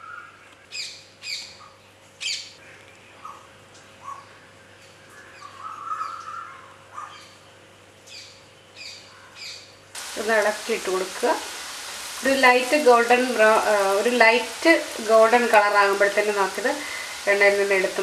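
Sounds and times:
bird calling: 5.1 - 7.4
dough frying in hot oil: 10.0 - 18.0.

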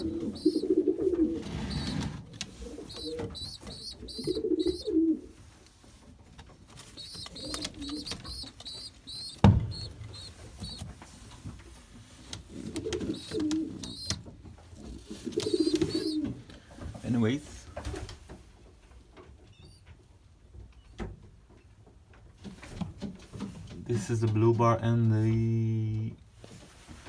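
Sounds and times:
squabs peeping: 0.0 - 5.2, 6.6 - 16.4
pigeons cooing: 0.0 - 5.4, 6.8 - 10.9, 12.4 - 14.2, 14.8 - 16.5.

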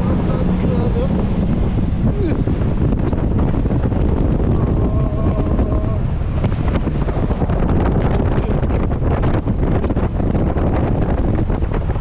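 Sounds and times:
loud low rumble: 0.0 - 12.0
wind buffeting microphone: 0.0 - 12.0.

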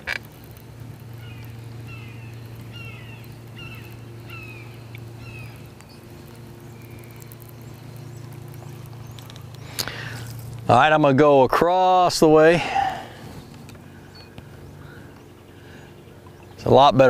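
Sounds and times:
electric motor humming: 0.0 - 11.0
bird calling: 1.1 - 10.4, 12.6 - 16.8.

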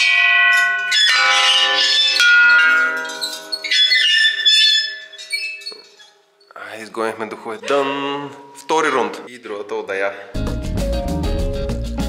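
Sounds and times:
metal bell clanging: 0.0 - 6.5.

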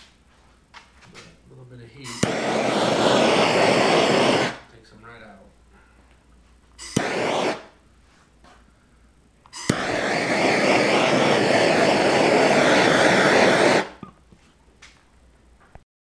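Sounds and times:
gas torch flame hissing: 1.9 - 4.7, 6.8 - 7.8, 9.5 - 14.0
torch ignition click: 2.1 - 4.6, 6.8 - 7.8, 9.4 - 14.0.

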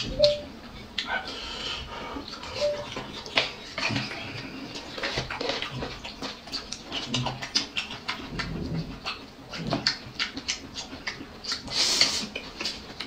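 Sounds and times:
people chewing and lip-smacking: 0.0 - 13.0.

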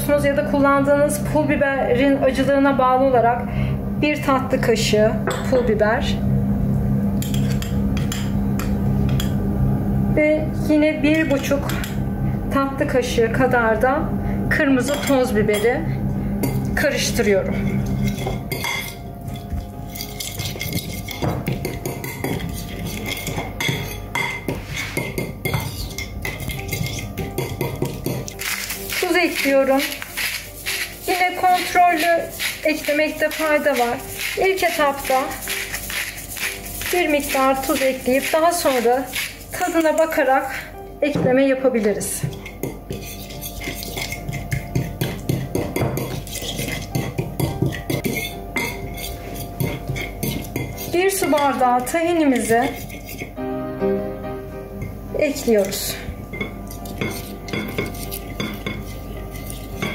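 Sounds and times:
fork scraping ceramic bowl: 7.2 - 8.2, 17.5 - 40.7, 42.2 - 53.4, 55.6 - 59.9.

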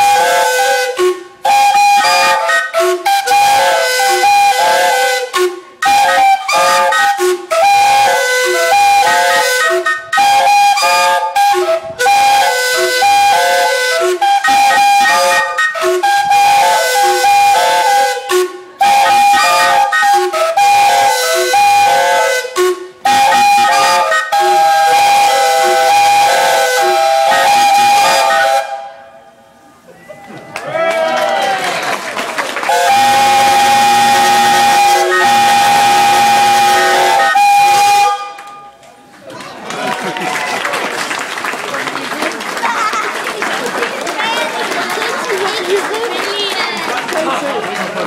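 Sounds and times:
steam whistles playing a tune: 0.0 - 30.6, 32.7 - 38.8.

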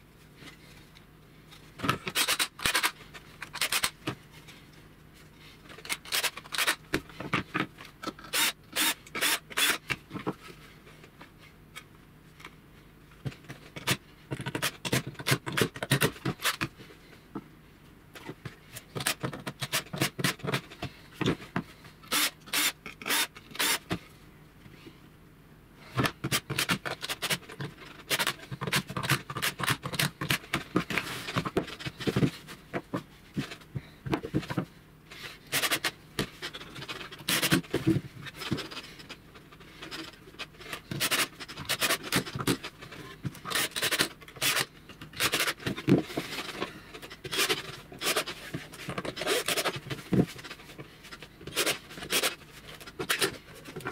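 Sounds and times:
cordless drill driving screws: 8.3 - 9.8, 22.1 - 23.8.

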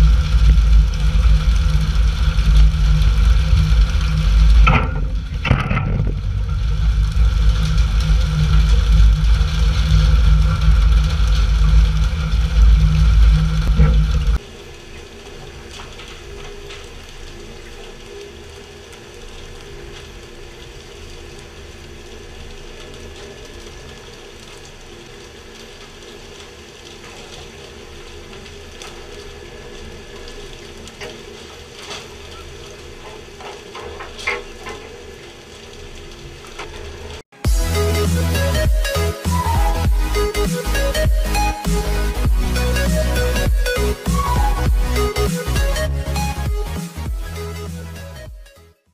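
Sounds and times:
boat engine rumbling: 0.0 - 14.4, 36.9 - 48.3
rushing water: 0.0 - 48.2
steady mechanical hum: 0.0 - 48.2.

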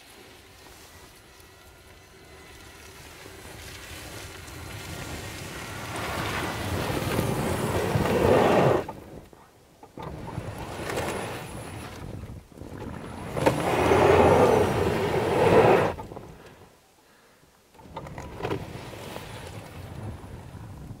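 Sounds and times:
tyres spinning in deep snow: 0.0 - 16.7.

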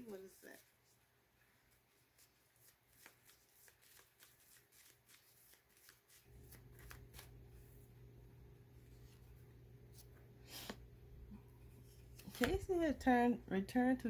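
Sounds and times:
cards being shuffled: 2.1 - 7.4, 12.0 - 12.8
low steady hum: 6.1 - 14.0.

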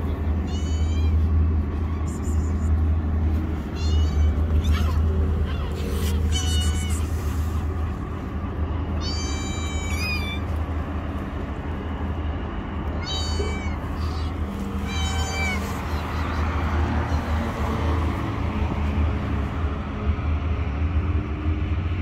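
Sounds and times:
kittens meowing: 0.1 - 2.8, 3.6 - 7.2, 9.0 - 10.6, 13.0 - 17.5.

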